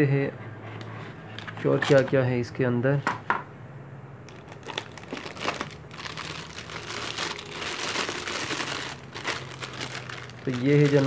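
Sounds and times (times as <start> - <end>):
plastic bag crinkling: 1.4 - 2.2, 4.3 - 11.0.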